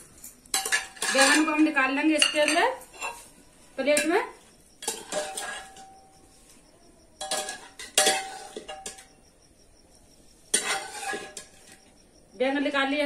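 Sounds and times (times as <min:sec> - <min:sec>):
metal spoon scraping a metal pot: 0:00.4 - 0:03.4, 0:04.8 - 0:06.0, 0:07.2 - 0:09.2, 0:10.5 - 0:11.9.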